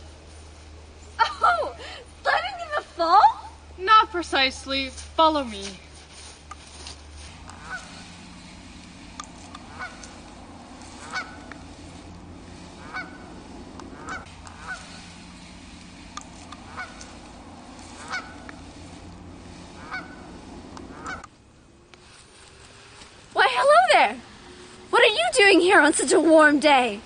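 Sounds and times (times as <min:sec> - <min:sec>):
steady low hum: 0:00.0 - 0:27.0
honking bird calls: 0:07.4 - 0:21.4.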